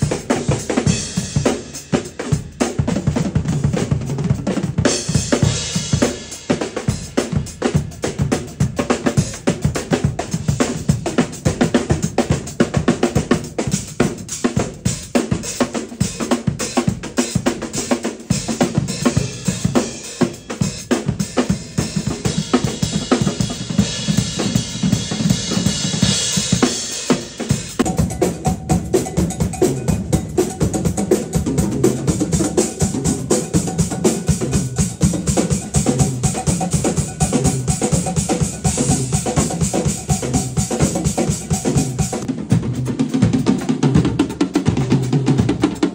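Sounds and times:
fast acoustic drumming: 0.0s - 45.9s
cymbals ringing: 26.0s - 34.8s.

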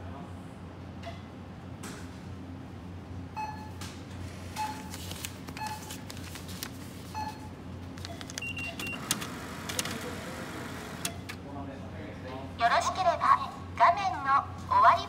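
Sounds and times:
store hum: 0.0s - 15.0s
checkout scanner beeps: 3.3s - 3.8s, 4.4s - 6.2s, 7.0s - 11.4s.

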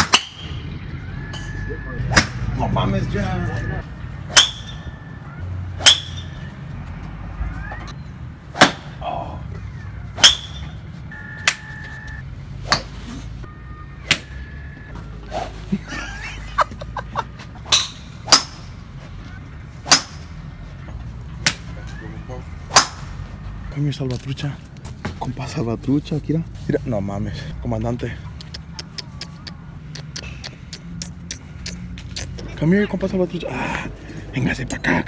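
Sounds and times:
golf clubs striking balls: 0.0s - 0.5s, 1.3s - 2.5s, 4.3s - 4.8s, 5.8s - 6.4s, 8.5s - 9.0s, 10.1s - 10.8s, 12.6s - 13.0s, 17.4s - 18.8s, 19.8s - 20.4s.

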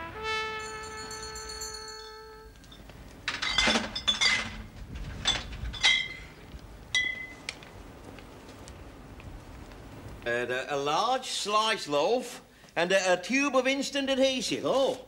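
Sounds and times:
glass bottles clinking: 0.7s - 7.4s.

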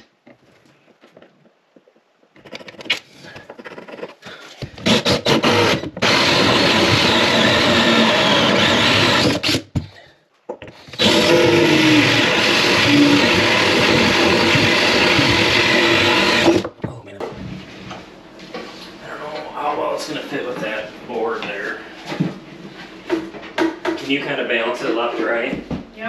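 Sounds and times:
cordless drill cutting wood: 4.8s - 9.8s, 10.9s - 16.7s.

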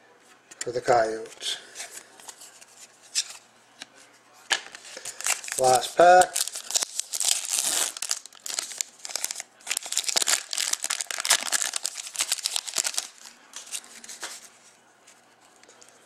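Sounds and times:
foil wrapper tearing and crinkling: 4.7s - 14.3s.

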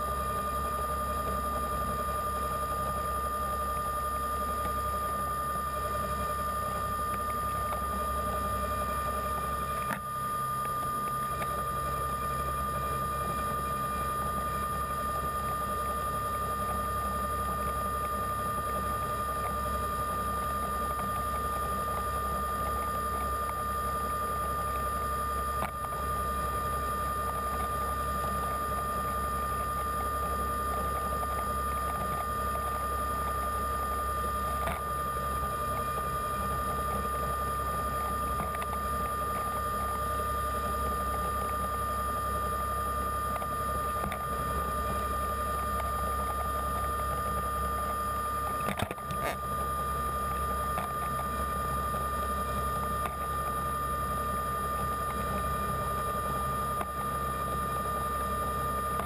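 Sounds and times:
underwater scooter motor whine: 0.0s - 59.0s.

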